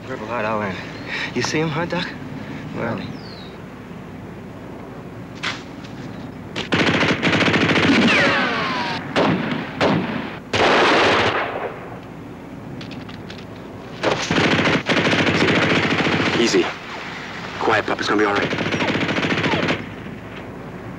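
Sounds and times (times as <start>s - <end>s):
automatic gunfire: 6.6s - 11.8s, 14.0s - 16.8s, 18.2s - 20.0s
falling whine: 7.9s - 10.4s.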